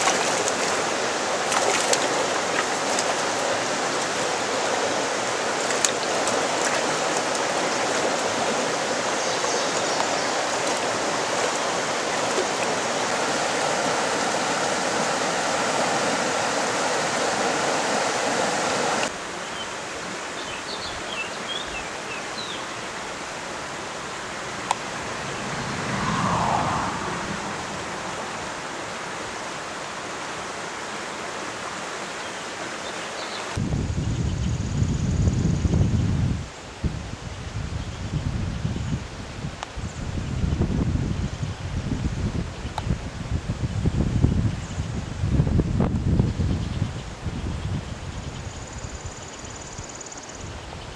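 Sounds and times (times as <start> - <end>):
stream water rushing: 0.0 - 33.7.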